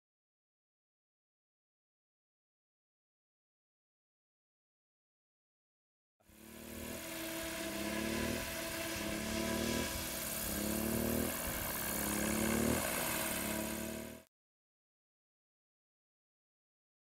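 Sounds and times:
low hum rising in pitch: 6.3 - 14.3
model helicopter rotor whir: 6.3 - 14.3.

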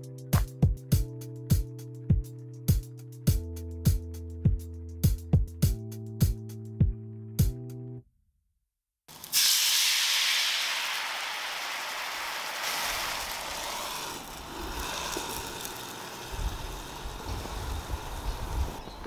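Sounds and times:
sauce sizzling in frying pan: 9.1 - 18.8.

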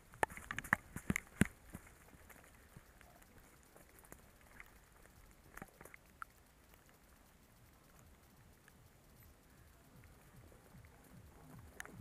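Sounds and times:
faint ticks and taps: 0.0 - 12.0.

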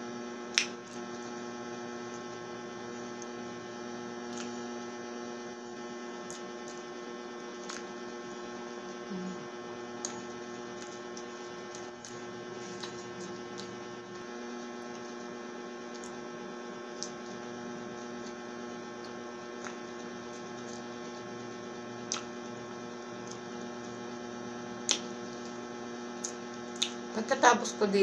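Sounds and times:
steady electrical hum: 0.0 - 28.0
mouth clicks from chewing: 26.2 - 27.0.

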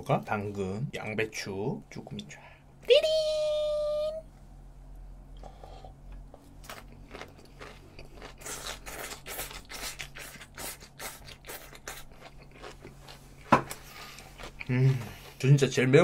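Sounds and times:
wet crunchy chewing: 6.1 - 15.4.

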